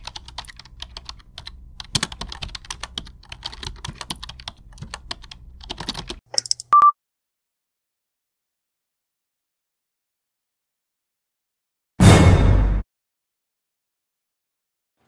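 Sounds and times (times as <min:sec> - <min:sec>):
low steady hum: 0:00.0 - 0:05.9
typing on computer keyboard: 0:00.0 - 0:06.7.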